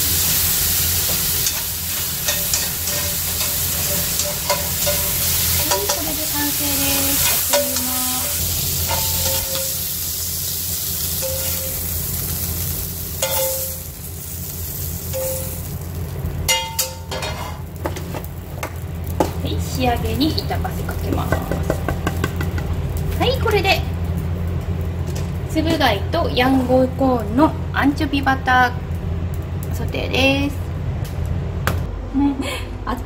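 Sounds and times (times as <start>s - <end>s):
food sizzling in frying pan: 0.0s - 25.4s
tongs clicking and scraping pan: 1.4s - 9.8s, 13.2s - 13.8s.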